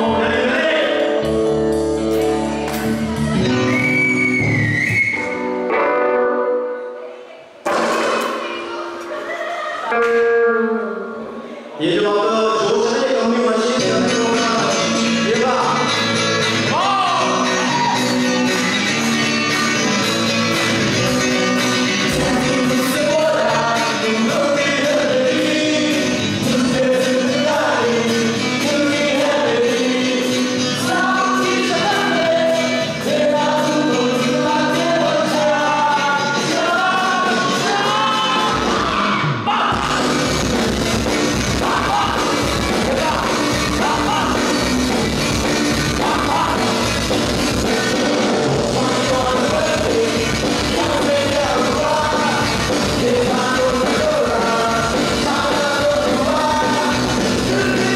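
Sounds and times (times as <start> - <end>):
man singing into microphone: 0.0 - 1.3, 11.7 - 18.0, 21.9 - 40.2, 41.4 - 45.1, 45.7 - 57.9
live band with electric guitars: 0.0 - 11.8, 12.5 - 57.9.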